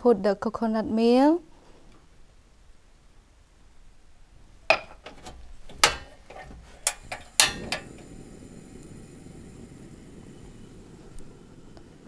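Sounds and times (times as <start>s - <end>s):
wok and cooking gear clicking: 4.7s - 8.0s.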